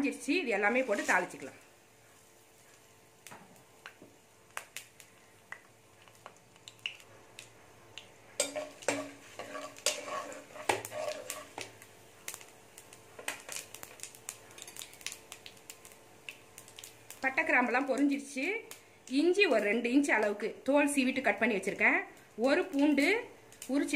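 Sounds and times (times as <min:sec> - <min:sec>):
spices crackling in hot oil: 0:00.0 - 0:23.9
ladle scraping a pan: 0:00.7 - 0:01.4, 0:08.4 - 0:11.7.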